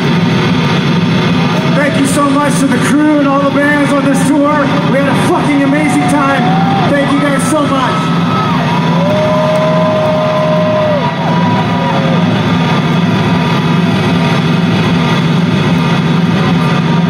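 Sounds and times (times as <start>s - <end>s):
crowd cheering: 1.1s - 17.0s
long held shouts: 5.8s - 12.2s.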